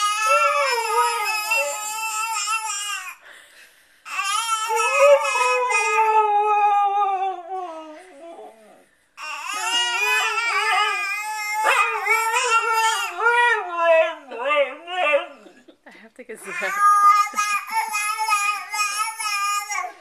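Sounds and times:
dog howling: 0:00.0 - 0:02.7, 0:04.5 - 0:08.8, 0:09.4 - 0:15.6.

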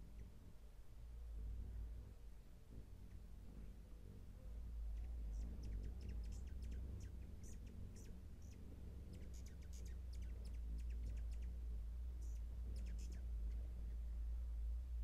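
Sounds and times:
steady low rumble: 0:00.0 - 0:15.0
hummingbirds chipping and squeaking: 0:01.5 - 0:15.0.

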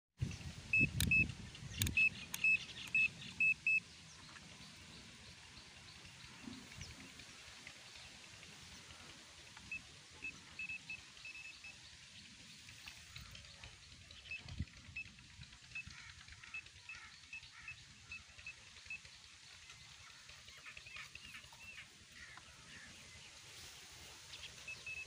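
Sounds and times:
multimeter short high beeps: 0:00.7 - 0:03.8, 0:09.6 - 0:11.8, 0:24.7 - 0:25.0
rotary switch clicks: 0:00.8 - 0:03.1.

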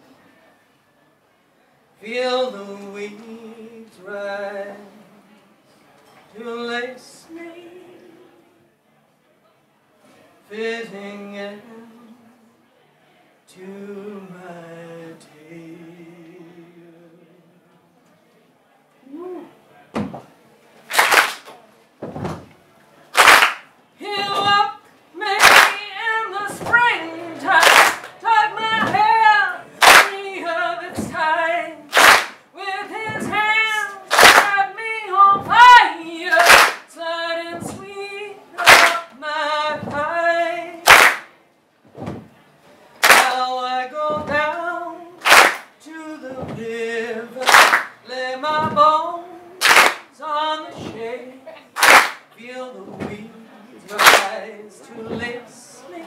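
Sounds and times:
woman singing a cappella: 0:02.0 - 0:05.3, 0:06.3 - 0:08.4, 0:10.5 - 0:12.4, 0:13.5 - 0:17.2, 0:24.0 - 0:40.9, 0:43.2 - 0:51.7, 0:52.3 - 0:56.0
sharp clap or stomp: 0:20.9 - 0:21.5, 0:23.2 - 0:23.7, 0:25.4 - 0:25.8, 0:27.6 - 0:28.1, 0:29.8 - 0:30.2, 0:31.9 - 0:32.4, 0:34.1 - 0:34.6, 0:36.3 - 0:36.9, 0:38.6 - 0:39.0, 0:40.9 - 0:41.3, 0:43.0 - 0:43.4, 0:45.2 - 0:45.7, 0:47.4 - 0:47.9, 0:49.6 - 0:50.1, 0:51.8 - 0:52.2, 0:54.0 - 0:54.3.

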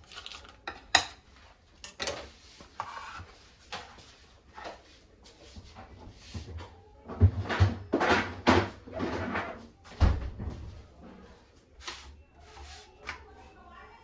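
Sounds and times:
knife scraping plastic tub: 0:02.6 - 0:03.9.

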